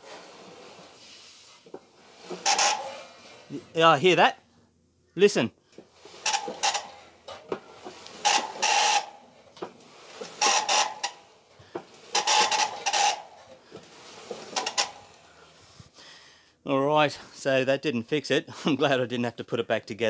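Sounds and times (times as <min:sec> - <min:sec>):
dryer drum rasping scrape: 0:00.0 - 0:04.0, 0:05.8 - 0:15.9.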